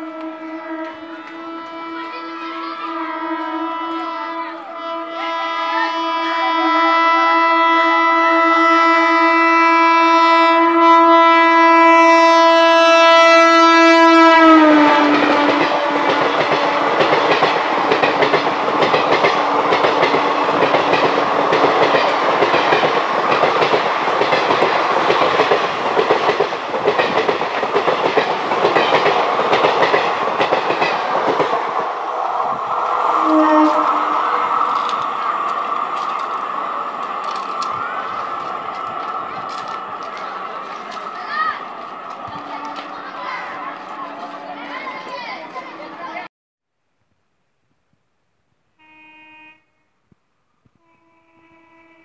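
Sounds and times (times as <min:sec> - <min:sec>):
train horn blast: 0:00.0 - 0:17.4, 0:33.0 - 0:35.3, 0:42.3 - 0:46.0, 0:48.8 - 0:50.0, 0:50.8 - 0:52.0
train wheels clickety-clack: 0:14.9 - 0:31.9, 0:34.4 - 0:44.4.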